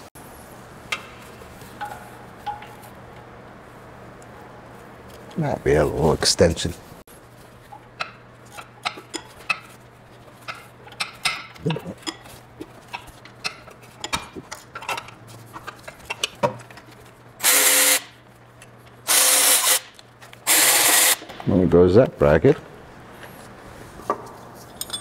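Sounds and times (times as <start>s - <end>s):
power tool spinning a bolt: 17.4s - 18.1s, 19.1s - 19.9s, 20.5s - 21.2s
hand tools clinking and knocking: 24.6s - 25.0s.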